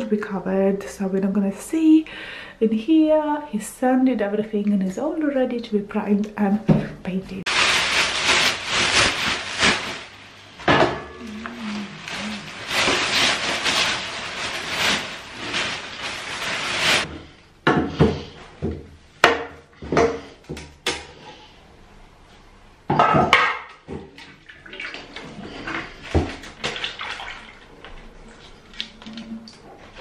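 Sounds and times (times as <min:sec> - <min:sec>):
plastic bag rustling: 0:07.4 - 0:17.1.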